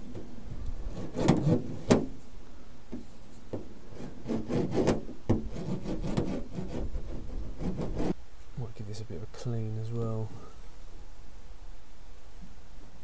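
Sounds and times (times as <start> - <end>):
hands rubbing pads on metal: 0.0 - 2.3, 2.9 - 8.2
sharp knocks on metal panel: 1.1 - 2.2, 4.6 - 6.5.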